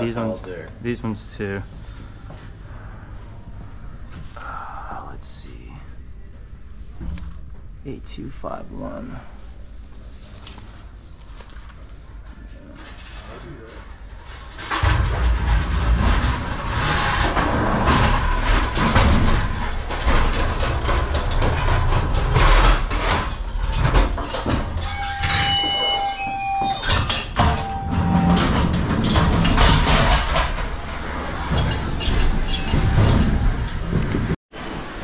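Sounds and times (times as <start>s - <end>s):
pallet jacks rolling over wood: 12.9s - 34.4s
high squeal: 24.8s - 28.5s.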